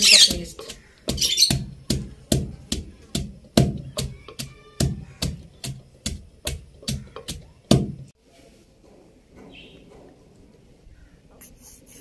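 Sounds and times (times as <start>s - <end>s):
pestle pounding in a mortar: 0.0s - 8.1s.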